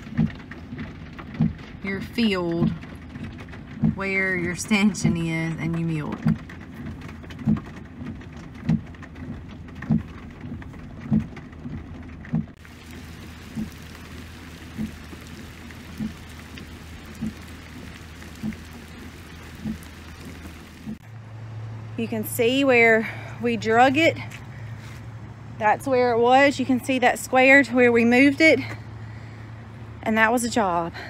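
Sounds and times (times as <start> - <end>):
steady rain: 0.0 - 21.9
footsteps through waterlogged ground: 12.5 - 21.2, 24.0 - 25.2.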